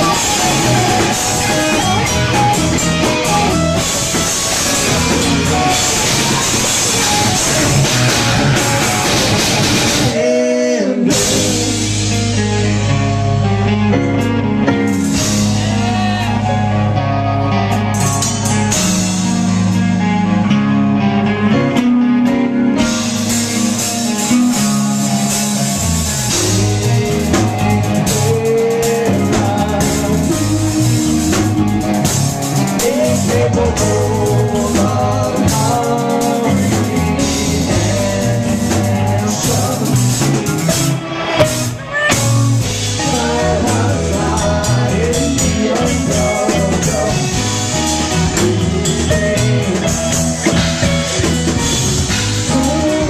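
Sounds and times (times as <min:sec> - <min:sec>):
drums and cymbals: 0:00.0 - 0:10.2, 0:11.0 - 0:12.9, 0:14.7 - 0:16.4, 0:17.8 - 0:19.7, 0:22.8 - 0:53.0
person singing: 0:00.0 - 0:12.9, 0:26.0 - 0:50.9, 0:52.2 - 0:53.0
electric guitar: 0:00.0 - 0:53.0.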